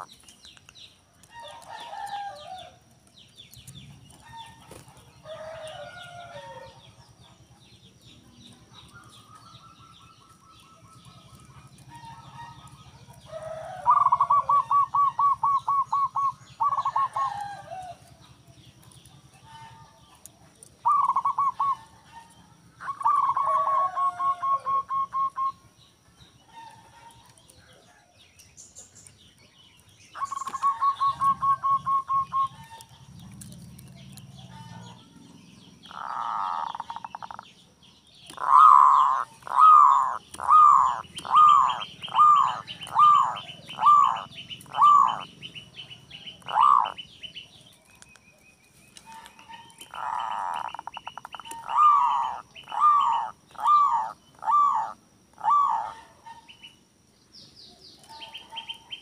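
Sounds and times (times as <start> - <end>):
dove cooing: 8.7 - 18.2, 19.1 - 25.7, 30.2 - 37.5, 38.2 - 47.6, 49.0 - 56.5.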